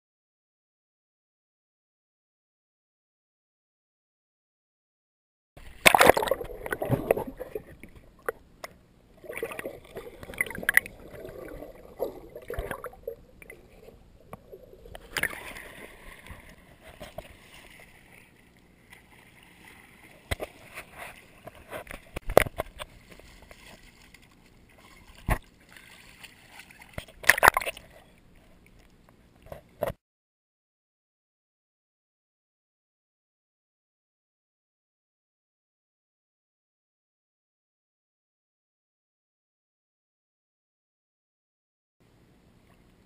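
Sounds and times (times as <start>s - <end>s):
water sloshing and splashing: 5.6s - 30.0s.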